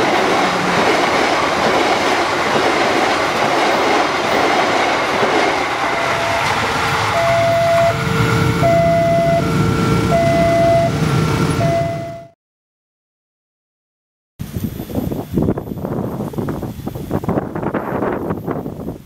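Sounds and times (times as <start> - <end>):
train wheels clattering on rails: 0.0 - 8.2
level crossing two-tone alarm: 5.8 - 11.0, 11.6 - 12.4.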